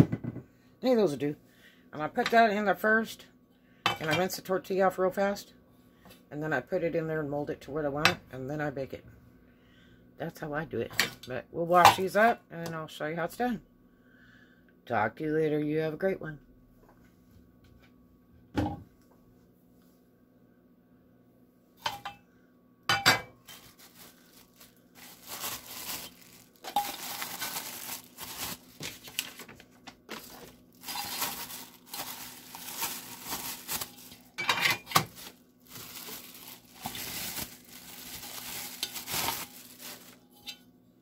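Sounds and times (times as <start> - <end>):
plastic bags crinkling: 23.4 - 40.6.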